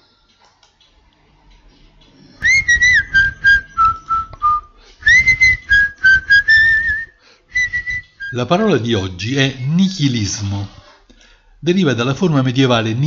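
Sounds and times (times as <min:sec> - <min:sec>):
whistled tune: 0:02.4 - 0:08.5.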